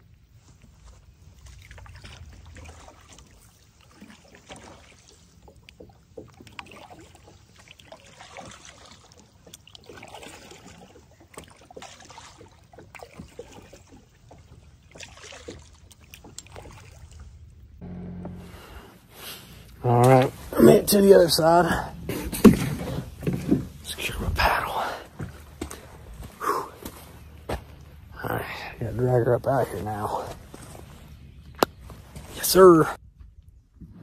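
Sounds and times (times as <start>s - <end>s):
paddle strokes through water: 0.2s - 27.2s
water dripping and splashing: 0.9s - 17.8s.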